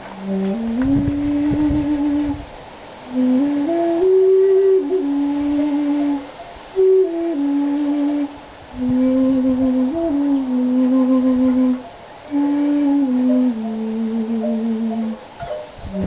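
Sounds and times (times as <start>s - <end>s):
bamboo flute slow melody: 0.0s - 2.5s, 3.1s - 16.0s.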